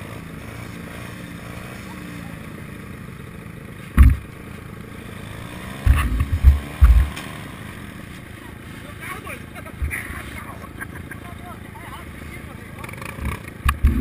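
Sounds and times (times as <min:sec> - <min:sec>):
dirt bike engines idling: 0:00.0 - 0:14.0
low thumps on microphone: 0:04.0 - 0:04.3, 0:05.8 - 0:07.2.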